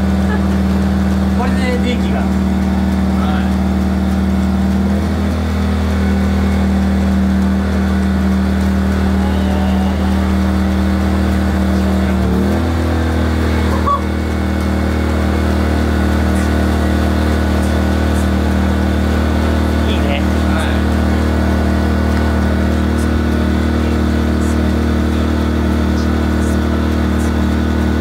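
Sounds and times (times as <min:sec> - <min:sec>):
generator engine running: 0:00.0 - 0:28.0.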